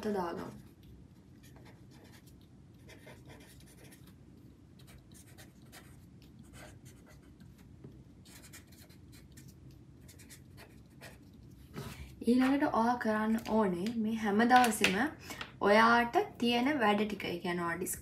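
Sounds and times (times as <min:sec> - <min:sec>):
pen scratching on paper: 0:00.5 - 0:04.2, 0:04.8 - 0:07.6, 0:08.3 - 0:11.3.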